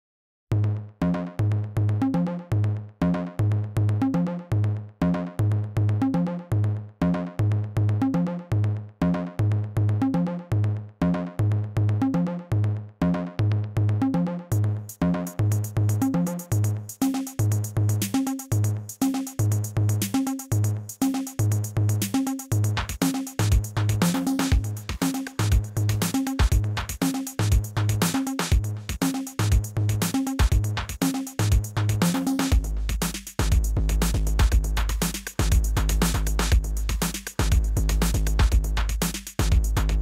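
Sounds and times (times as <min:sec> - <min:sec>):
electronic music with beat and bass: 0:14.1 - 0:40.0.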